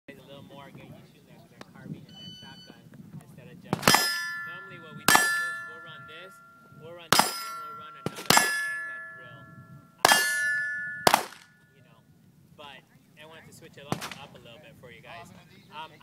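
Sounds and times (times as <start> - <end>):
handgun shots: 3.8 - 4.3, 7.1 - 8.8, 11.0 - 11.5
steel target plate ringing: 3.8 - 11.8.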